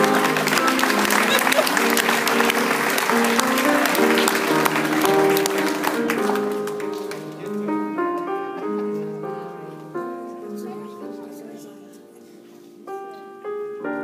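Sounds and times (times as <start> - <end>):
audience applause: 0.0 - 7.6
piano melody: 0.0 - 14.0.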